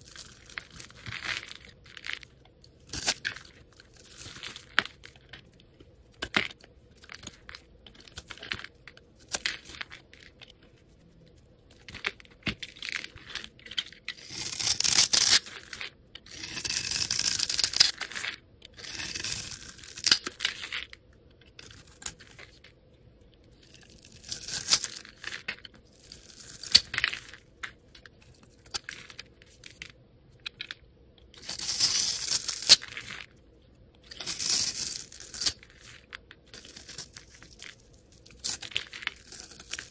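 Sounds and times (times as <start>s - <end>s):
blades scraping soap: 34.2s - 35.6s.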